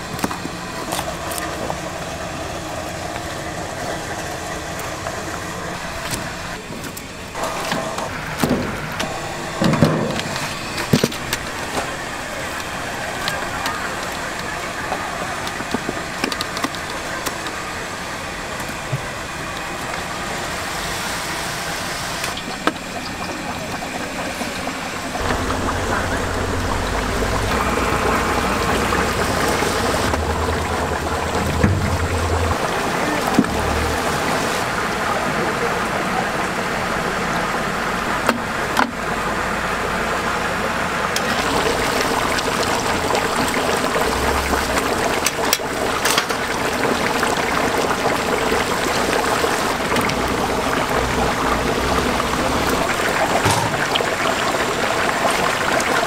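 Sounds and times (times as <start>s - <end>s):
hot oil sizzling and bubbling: 0.0s - 56.0s
low hum: 25.2s - 35.1s.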